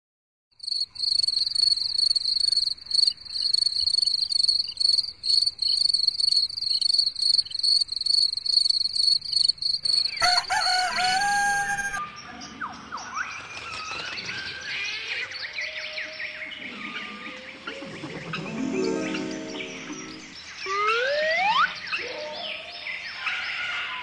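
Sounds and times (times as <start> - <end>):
cricket chirping: 0.6 - 12.0
rooster crowing: 10.1 - 12.0.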